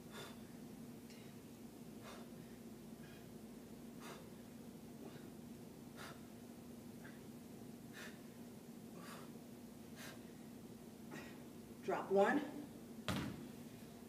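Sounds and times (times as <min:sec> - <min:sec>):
woman breathing: 0:00.0 - 0:06.4, 0:07.0 - 0:11.6
steady low hum: 0:00.0 - 0:14.0.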